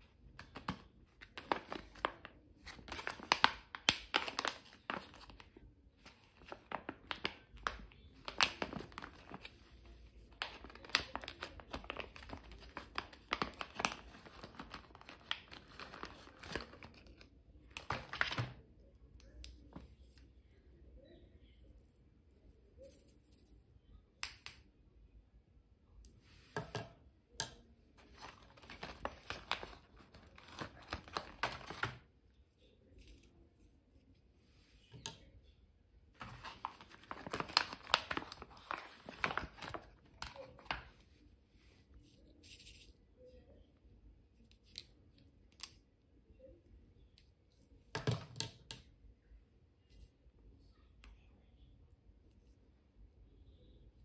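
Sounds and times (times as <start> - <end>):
plastic packaging rustling: 0.3 - 18.6, 28.0 - 32.1, 36.2 - 41.0.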